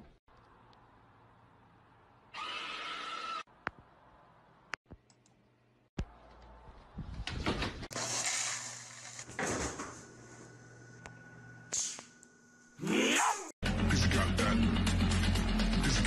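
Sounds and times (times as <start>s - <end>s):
cereal poured into a bowl: 8.0s - 9.3s.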